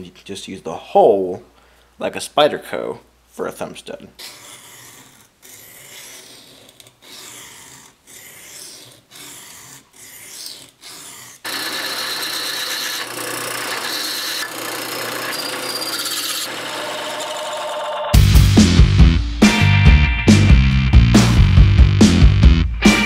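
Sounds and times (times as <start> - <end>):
electric drill boring metal: 11.4 - 18.2.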